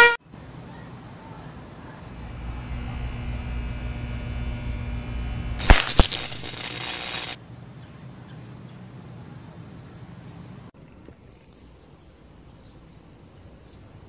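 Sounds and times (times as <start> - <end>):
low steady electrical hum: 1.7 - 10.7
electrical arc crack: 2.2 - 7.4
electrical snaps: 2.2 - 7.4.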